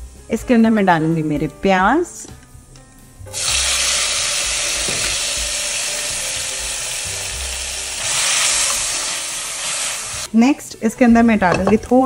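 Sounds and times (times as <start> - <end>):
onions sizzling in oil: 3.3 - 10.3.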